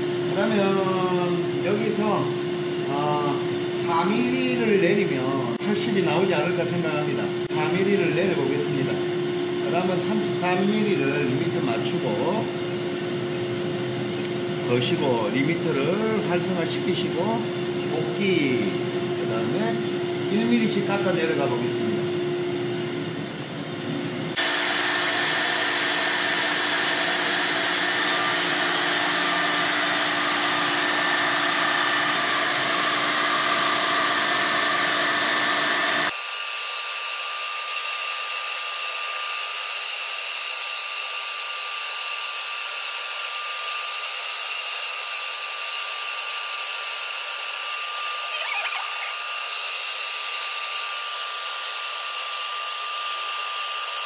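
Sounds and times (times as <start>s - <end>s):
router cutting wood: 0.0s - 22.0s, 24.3s - 54.0s.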